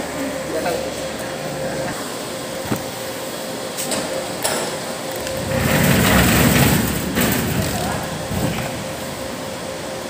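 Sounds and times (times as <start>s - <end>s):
mechanical hum and hiss: 0.0s - 10.0s.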